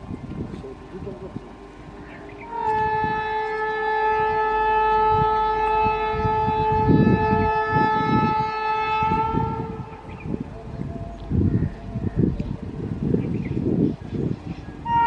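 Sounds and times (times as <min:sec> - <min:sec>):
low train rumbling: 0:00.0 - 0:15.0
locomotive air horn blast: 0:02.4 - 0:10.1, 0:14.8 - 0:15.0.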